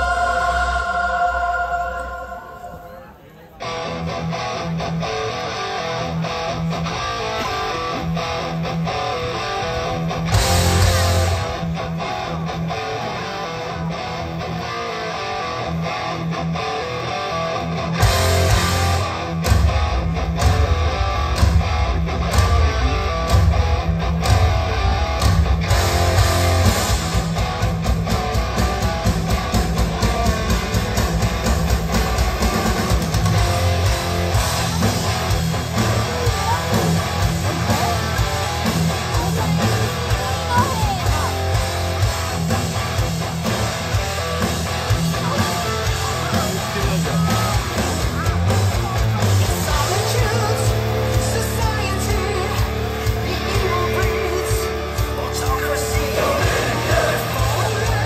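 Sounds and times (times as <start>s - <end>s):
rock music with electric guitar: 0.0s - 2.7s, 3.5s - 58.0s.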